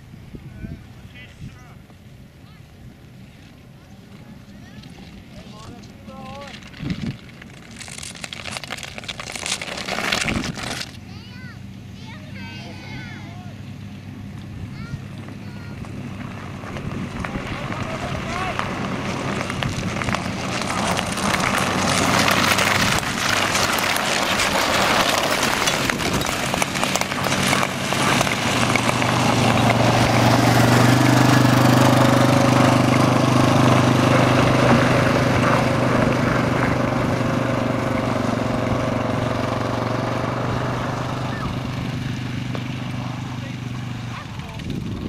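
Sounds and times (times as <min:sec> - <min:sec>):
quad bike engine: 0:01.9 - 0:45.0
skate blades scraping ice: 0:03.3 - 0:11.1, 0:16.6 - 0:36.9.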